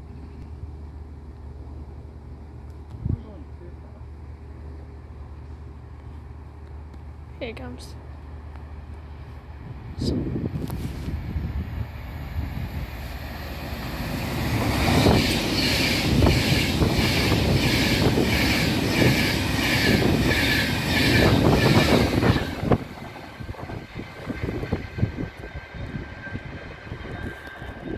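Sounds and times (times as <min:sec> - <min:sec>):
electric train passing: 0:03.8 - 0:27.9
wind buffeting microphone: 0:09.4 - 0:27.9.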